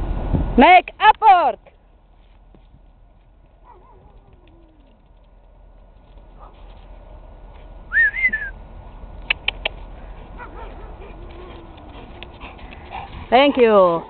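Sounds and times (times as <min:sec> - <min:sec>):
person whistling: 0:07.9 - 0:08.5
sharp clicks: 0:09.2 - 0:09.8.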